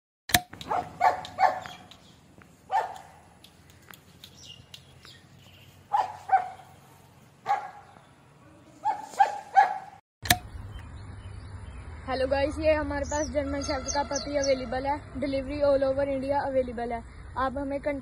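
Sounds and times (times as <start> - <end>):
puppies yapping: 0.6 - 4.8, 5.8 - 10.0.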